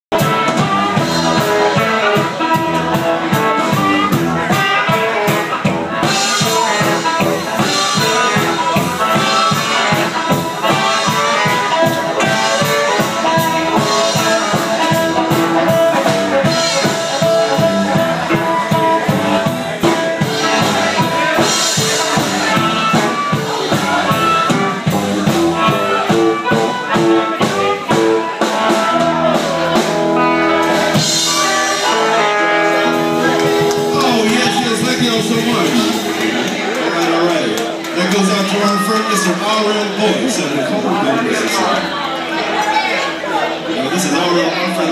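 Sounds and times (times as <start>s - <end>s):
harmonica lead: 0.1s - 37.1s
live band playing: 0.1s - 44.9s.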